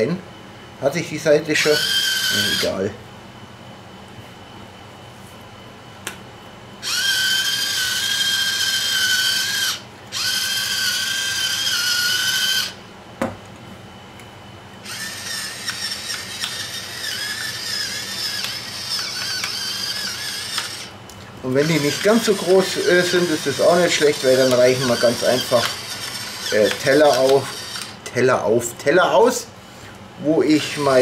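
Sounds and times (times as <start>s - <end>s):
electric mill motor whining: 1.5s - 2.9s, 6.8s - 12.8s, 14.8s - 28.1s.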